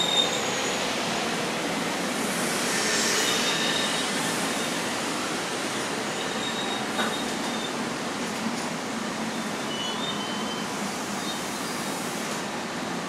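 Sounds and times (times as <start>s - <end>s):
train rolling slowly: 0.0s - 13.0s
faint high squeals: 3.2s - 4.8s, 6.1s - 7.8s, 9.4s - 11.4s.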